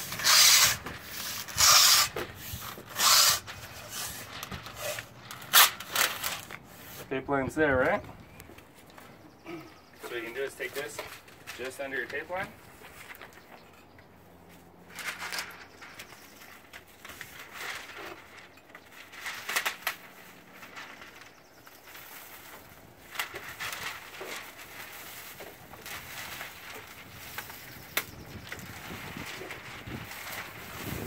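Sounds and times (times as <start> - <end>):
paper and plastic rustling: 0.0 - 7.2, 10.0 - 13.6, 14.6 - 31.0.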